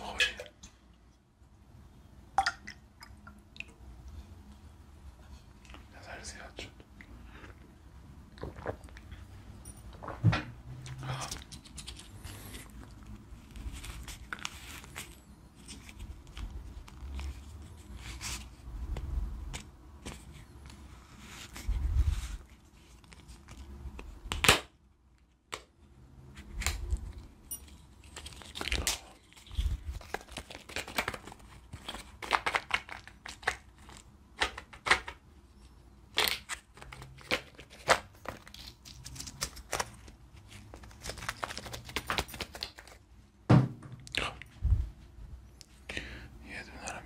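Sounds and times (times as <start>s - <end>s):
plastic wrapping crinkling and tearing: 11.1s - 18.6s, 21.2s - 24.6s, 27.9s - 35.0s, 36.1s - 43.1s.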